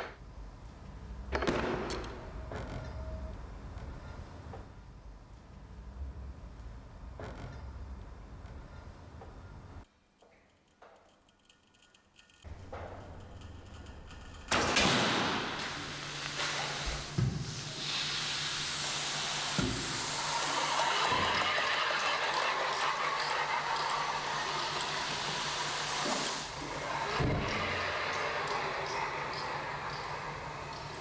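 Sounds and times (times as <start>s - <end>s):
sand pouring from a drum: 15.7s - 22.3s.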